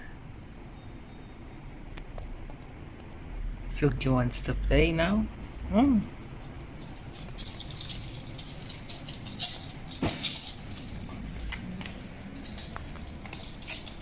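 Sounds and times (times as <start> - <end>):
dog claws clicking on wooden floor: 6.4 - 14.0.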